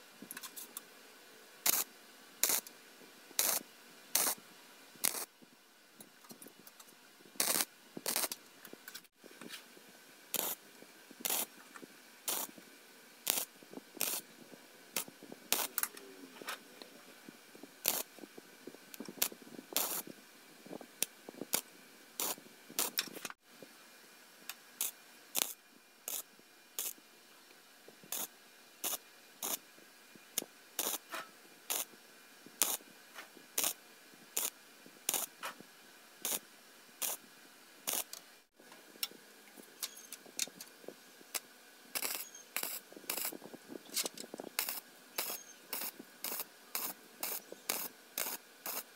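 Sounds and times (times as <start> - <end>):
mig welder tack welds: 1.6 - 2.7, 3.4 - 4.4, 5.0 - 5.3, 7.4 - 9.1, 10.3 - 10.6, 11.2 - 12.6, 13.2 - 14.3, 14.9 - 16.0, 17.8 - 18.2, 18.9 - 20.1, 21.0 - 23.4, 24.5 - 27.0, 28.0 - 29.6, 30.4 - 35.6, 36.2 - 36.4, 37.0 - 37.3, 37.9 - 38.3, 39.0 - 48.9.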